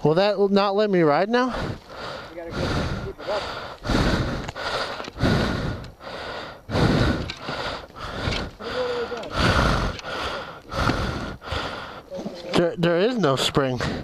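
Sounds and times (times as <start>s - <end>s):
person breathing hard: 1.5s - 12.2s.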